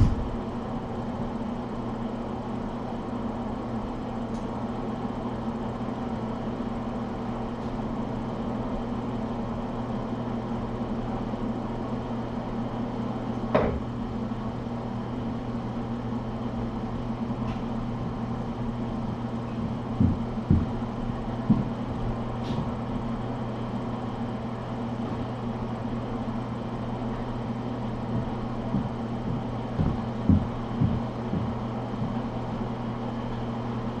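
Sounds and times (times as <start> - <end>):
low electrical hum: 0.0 - 34.0
soft low thumps: 19.5 - 22.8, 28.1 - 32.4.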